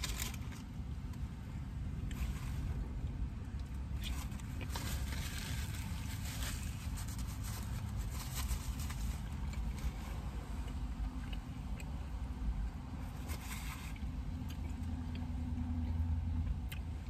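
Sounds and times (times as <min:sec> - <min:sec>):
paper wrapper crinkling: 0:00.0 - 0:00.7, 0:04.0 - 0:10.0.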